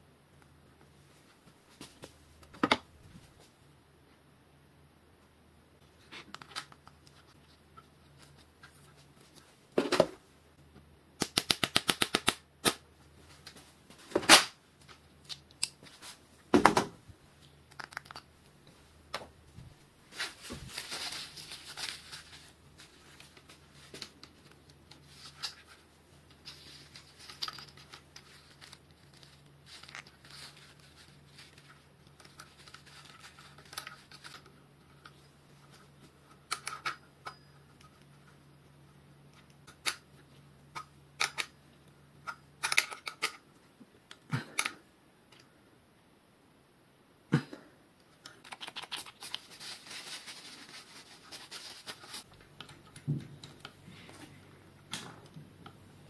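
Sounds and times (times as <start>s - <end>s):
faint low hum: 12.4s - 56.0s.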